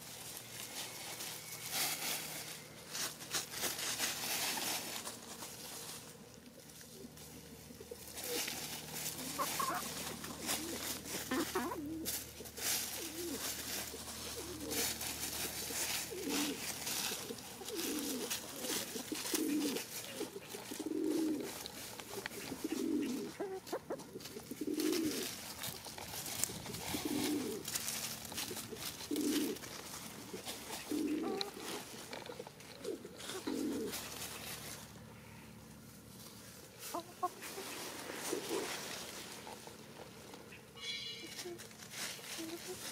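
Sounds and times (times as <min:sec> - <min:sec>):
chickens scratching dry leaves: 0:00.0 - 0:42.9
pigeons cooing: 0:00.0 - 0:42.9.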